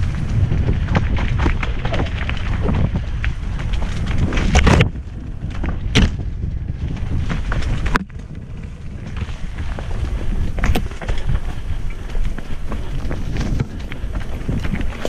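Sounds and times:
bike knocks and rattles: 0:00.0 - 0:15.0
tyres rumbling on dirt: 0:00.0 - 0:15.0
wind buffeting microphone: 0:00.0 - 0:15.0.

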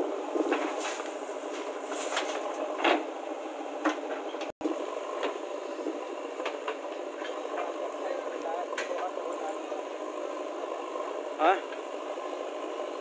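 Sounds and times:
bucket knocking and scraping earth: 0:00.0 - 0:03.1
backhoe machine noise: 0:00.0 - 0:13.0.

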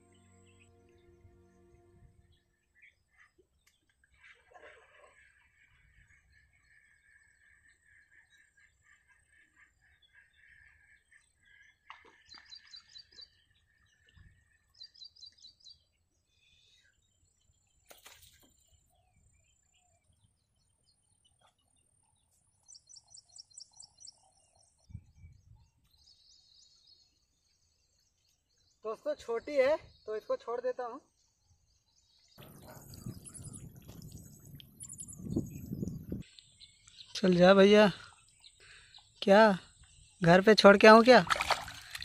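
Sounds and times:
high bird chirps: 0:32.4 - 0:37.6.

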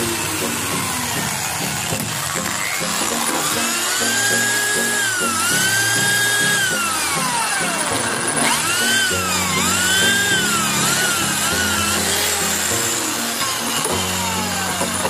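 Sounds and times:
background music: 0:00.0 - 0:15.0
electric drill motor whine: 0:00.0 - 0:15.0.

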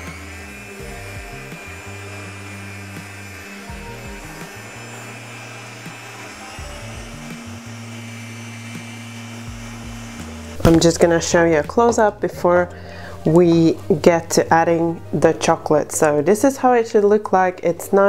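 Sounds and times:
whisk beating in metal bowl: 0:00.0 - 0:12.0
stand mixer motor running: 0:00.0 - 0:12.7
background music: 0:00.0 - 0:18.0.

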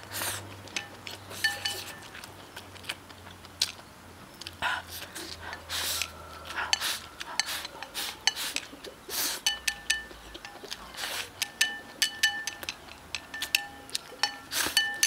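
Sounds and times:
loud slurping: 0:00.0 - 0:02.1, 0:04.7 - 0:09.6, 0:10.8 - 0:11.4, 0:14.2 - 0:15.0
chopsticks clinking on ceramic bowl: 0:00.7 - 0:02.3, 0:05.6 - 0:15.0.

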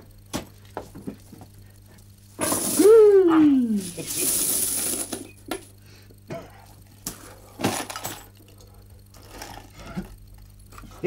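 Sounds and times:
coins clinking: 0:03.8 - 0:05.4.

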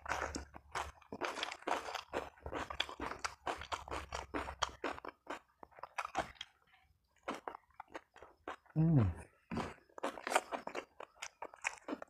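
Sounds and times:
person chewing crunchy food: 0:00.0 - 0:12.0.

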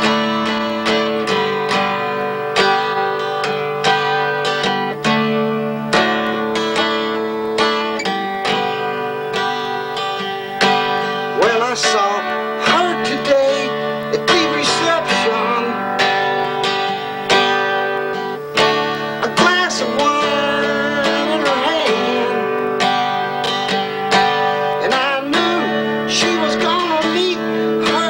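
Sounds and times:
acoustic guitar strumming chords: 0:00.0 - 0:28.0
man singing: 0:10.8 - 0:17.4, 0:18.6 - 0:28.0.

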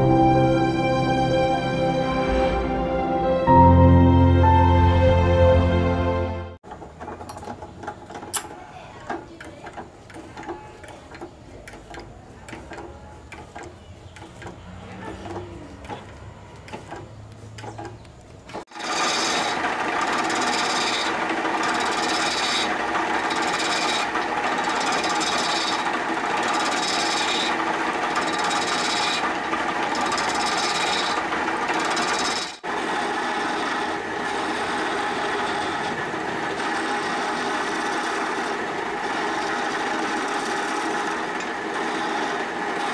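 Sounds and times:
lathe tool rasping on wood: 0:18.6 - 0:42.9.

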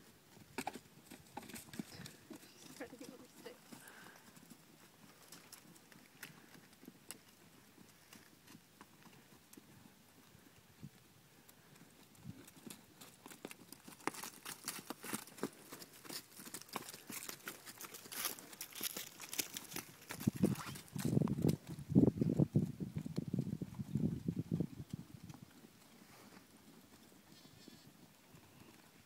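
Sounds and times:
horse hoofbeats on grass: 0:11.6 - 0:29.0.

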